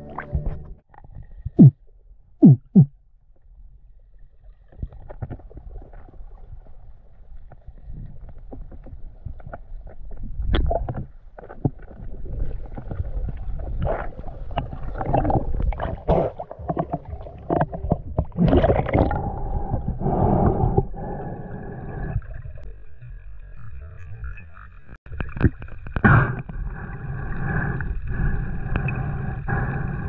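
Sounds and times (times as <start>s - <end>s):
water gurgling and sloshing: 0.0s - 30.0s
water splashing: 10.5s - 19.7s.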